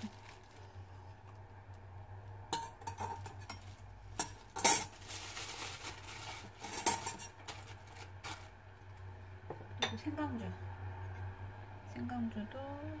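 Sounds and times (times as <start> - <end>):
rustling: 0.0 - 0.9, 3.6 - 8.6.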